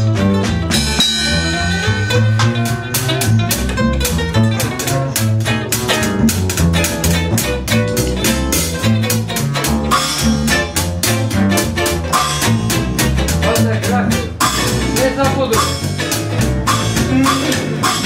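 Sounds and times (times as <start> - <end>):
acoustic guitar picking: 0.0 - 18.0
plucked double bass: 0.0 - 18.0.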